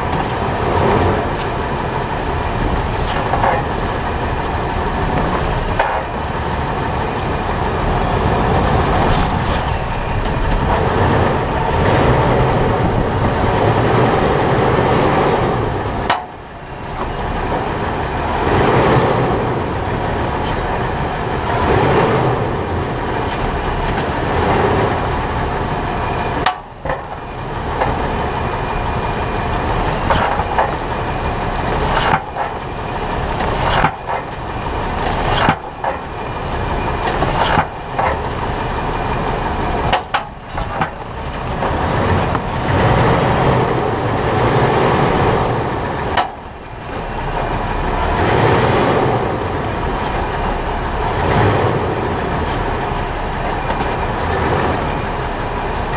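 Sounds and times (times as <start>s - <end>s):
suspension knocks: 0.0s - 14.4s, 25.8s - 45.0s
road and tyre rumble: 0.0s - 55.9s.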